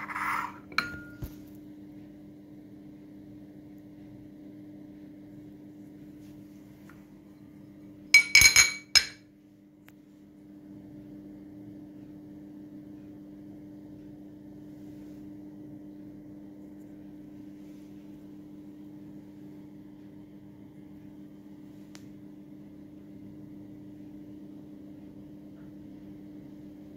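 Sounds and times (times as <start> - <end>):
ceramic lid clinking: 0.0 - 1.2, 8.2 - 9.2.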